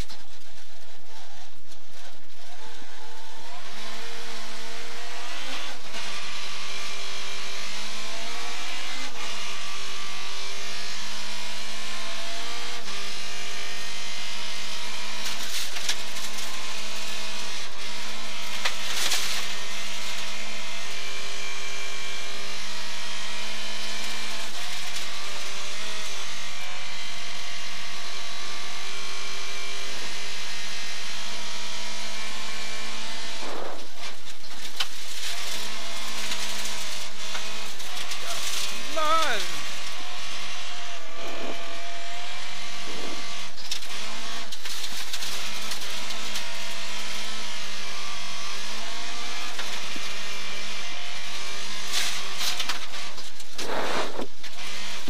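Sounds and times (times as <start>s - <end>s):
rally car engine revving: 0.0s - 55.0s
tyres on loose gravel: 34.0s - 39.8s.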